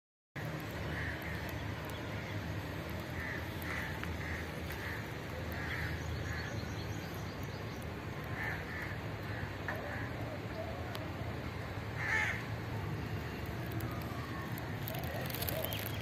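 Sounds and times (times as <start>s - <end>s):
crows cawing: 0.8s - 1.6s, 3.0s - 6.6s, 8.2s - 10.4s, 12.0s - 12.6s.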